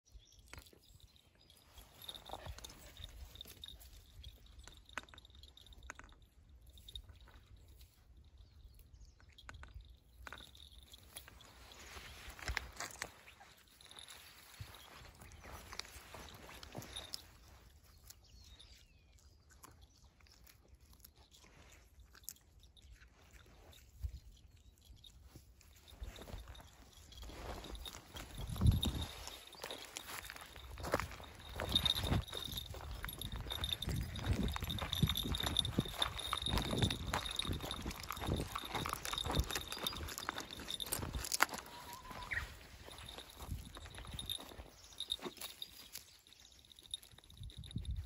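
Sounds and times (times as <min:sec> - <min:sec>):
birds chirping: 0:00.1 - 0:04.6, 0:08.2 - 0:19.2, 0:24.8 - 0:47.5
dog rooting in grass: 0:25.7 - 0:47.5.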